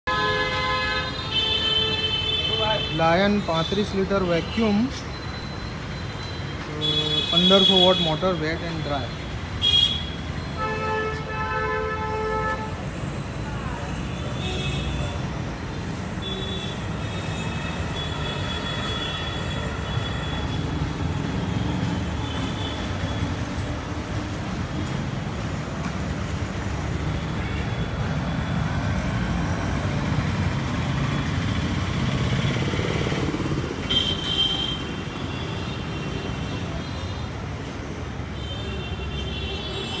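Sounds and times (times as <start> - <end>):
street traffic rumble: 0.0 - 40.0
vehicle horns honking: 0.1 - 4.6, 9.6 - 12.8.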